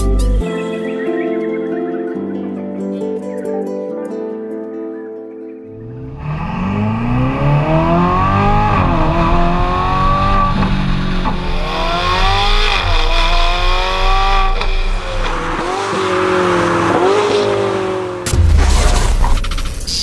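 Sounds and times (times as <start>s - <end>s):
sports car accelerating hard: 5.8s - 18.3s.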